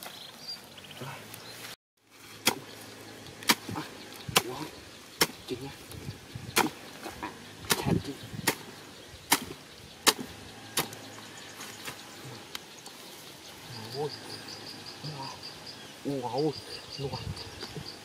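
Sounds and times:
sharp chopping blows: 3.4 - 5.4, 6.5 - 6.8, 7.6 - 8.7, 9.3 - 11.0
insect pulsing chirp: 3.7 - 18.0.

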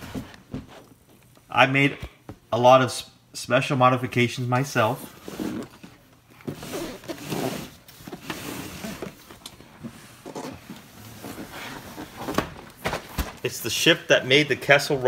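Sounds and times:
cardboard boxes scraping: 5.1 - 12.4.

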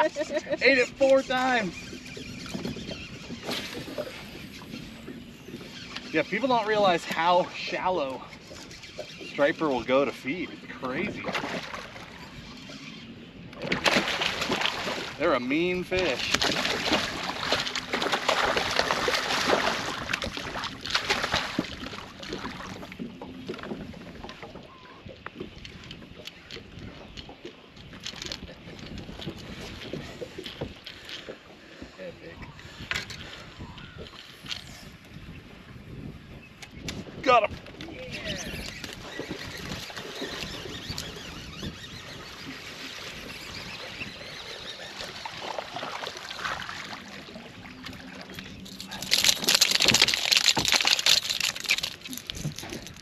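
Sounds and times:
water lapping against boat hull: 0.0 - 53.0
fish splashing at surface: 48.6 - 52.8.

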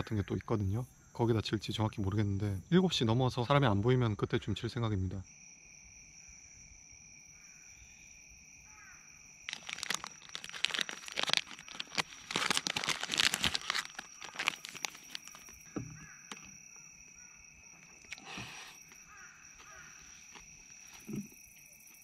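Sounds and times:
plastic wrapper crinkling and tearing: 9.5 - 15.6.

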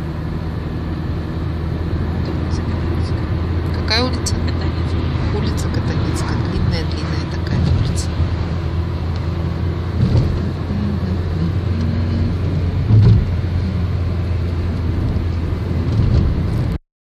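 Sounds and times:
car engine and road noise: 0.0 - 16.8.

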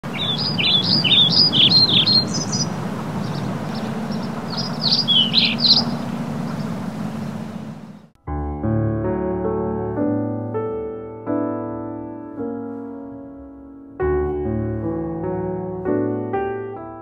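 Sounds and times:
birds chirping: 0.0 - 8.1
piano music: 0.0 - 17.0.

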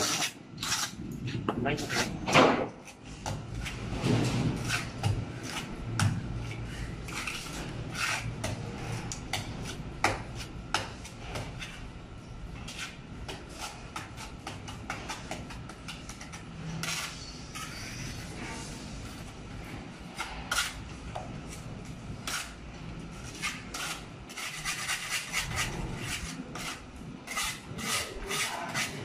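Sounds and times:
trowel scraping mortar: 0.0 - 1.0, 7.1 - 10.5, 23.2 - 29.0.

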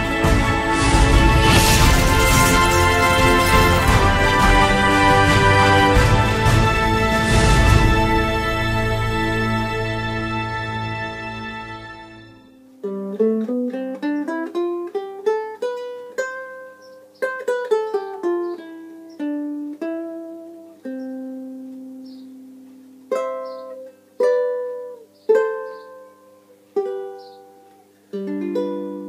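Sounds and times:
ukulele plucked notes: 0.0 - 6.7, 12.6 - 29.0.

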